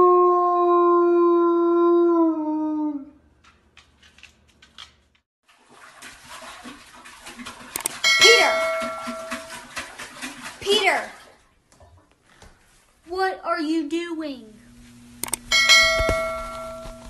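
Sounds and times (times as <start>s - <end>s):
dog howling: 0.0s - 3.2s
dog lapping water: 5.5s - 12.0s.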